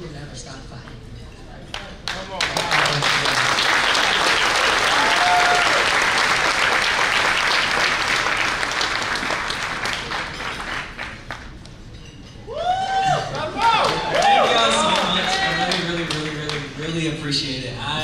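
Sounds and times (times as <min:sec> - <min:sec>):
audience applauding: 0:01.8 - 0:11.6, 0:13.4 - 0:17.0.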